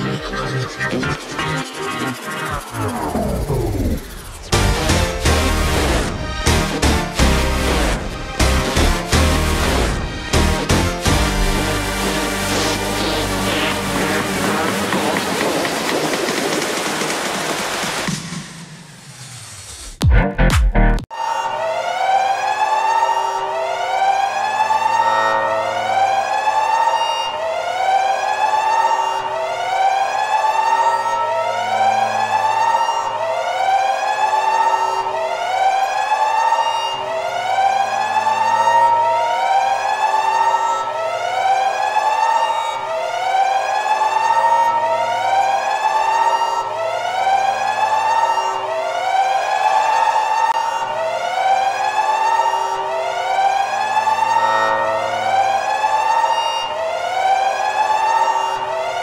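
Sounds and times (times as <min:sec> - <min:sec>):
electronic warning siren wailing: 0:00.0 - 0:17.9, 0:21.1 - 0:59.0
low drone: 0:00.0 - 0:17.9.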